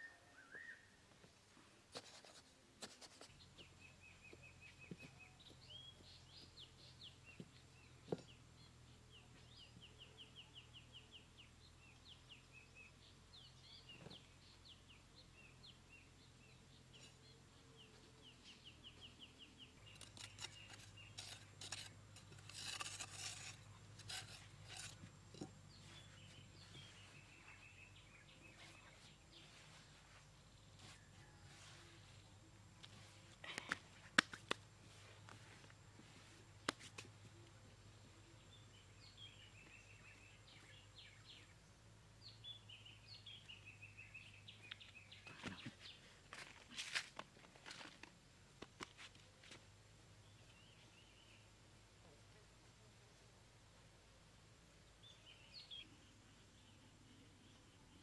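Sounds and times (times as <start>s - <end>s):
small birds chirping: 1.8s - 53.4s, 54.7s - 58.0s
hands scraping sandy soil: 19.8s - 27.8s.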